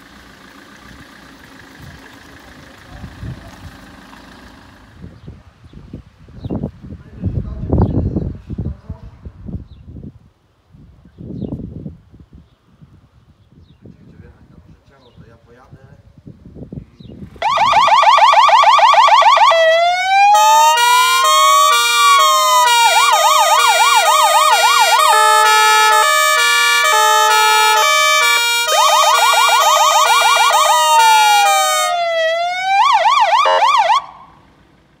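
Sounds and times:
fire engine siren: 17.4s - 34.5s.

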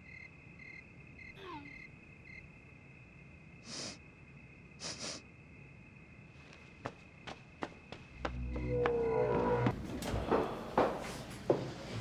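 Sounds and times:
woman sniffing: 3.6s - 4.0s, 4.8s - 5.3s.

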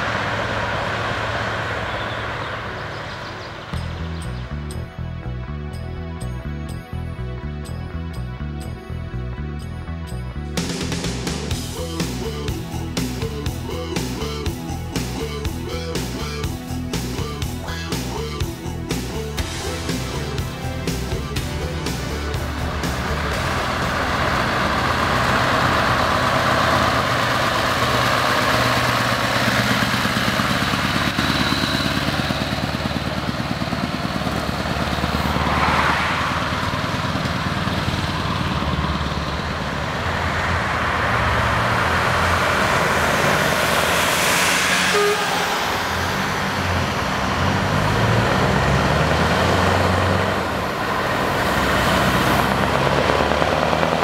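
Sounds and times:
diesel truck engine revving: 0.0s - 54.0s.

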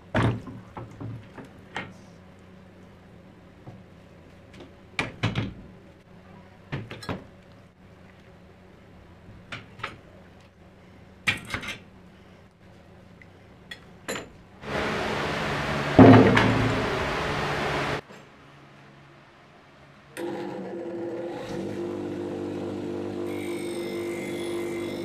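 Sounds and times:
loud steady rushing noise: 14.6s - 18.0s.

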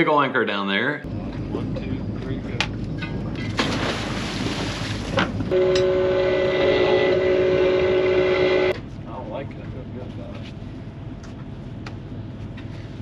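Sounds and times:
two-tone boat horn blast: 5.5s - 8.8s.

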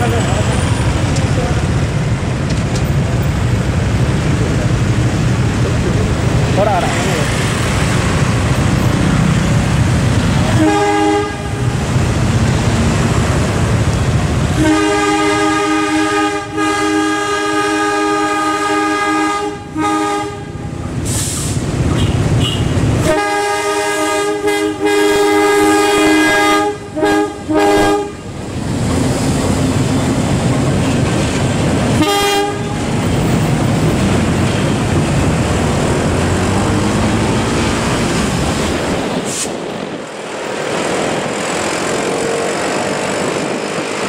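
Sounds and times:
locomotive engine rumble: 0.0s - 44.0s
locomotive horn blasts: 10.4s - 11.8s, 14.5s - 20.8s, 21.9s - 28.3s, 32.0s - 33.1s.

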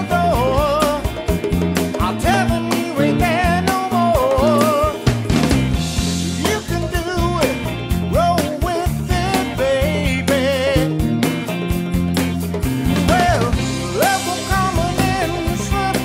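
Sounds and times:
person singing: 0.0s - 1.3s, 1.9s - 5.2s, 6.0s - 11.1s, 12.9s - 16.0s
bass line: 0.0s - 16.0s
drum beat: 0.0s - 16.0s.

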